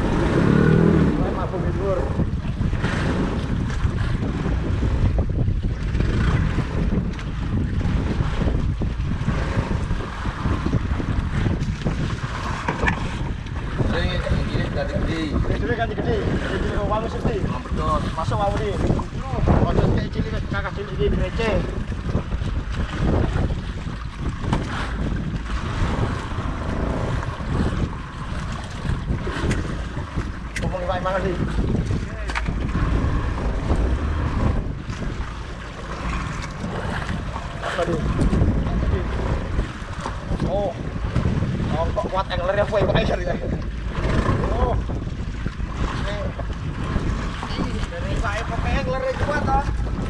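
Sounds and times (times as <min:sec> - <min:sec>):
choppy sea washing around a boat: 0:00.0 - 0:50.0
wind buffeting microphone: 0:00.0 - 0:50.0.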